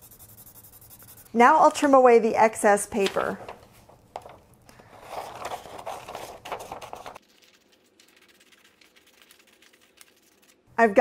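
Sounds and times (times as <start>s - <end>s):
paper rustling: 3.0s - 10.6s.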